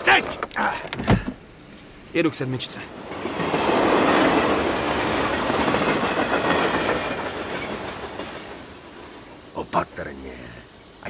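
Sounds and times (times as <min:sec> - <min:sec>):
train wheels clattering: 0:03.0 - 0:09.1.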